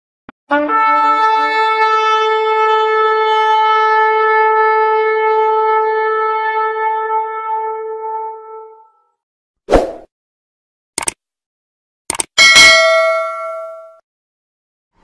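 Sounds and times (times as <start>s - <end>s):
long horn note: 0.5s - 8.8s.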